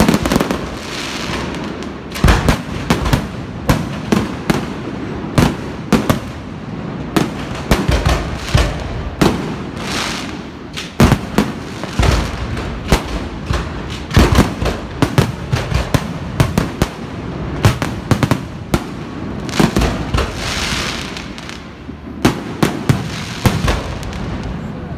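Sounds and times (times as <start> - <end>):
fireworks bangs: 0.0 - 24.9
fireworks hissing crackle: 0.0 - 24.9.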